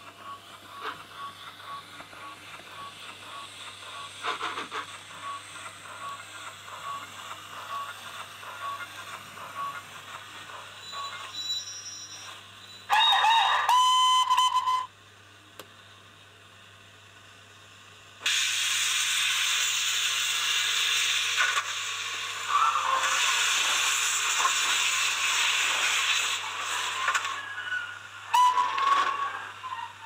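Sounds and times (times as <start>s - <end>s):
loud steady steam hiss: 2.4s - 12.6s, 18.2s - 28.6s
steam locomotive whistle: 12.9s - 14.9s, 27.2s - 29.4s.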